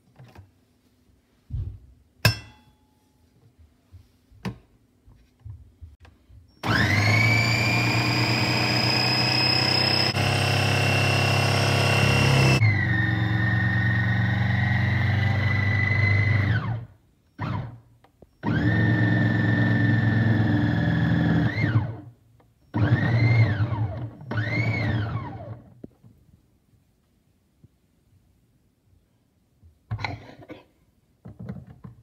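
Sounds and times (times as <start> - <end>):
food processor motor whining: 6.6 - 16.8, 18.4 - 22.0, 22.7 - 25.6
food processor pulses: 6.6 - 16.8, 18.4 - 22.0, 22.7 - 25.6.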